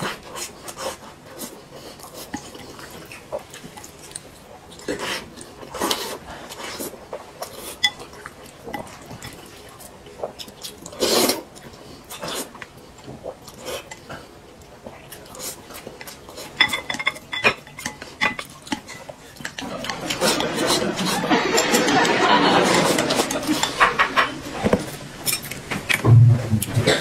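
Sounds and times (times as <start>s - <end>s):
chopsticks scraping glass bowls: 16.4s - 26.0s.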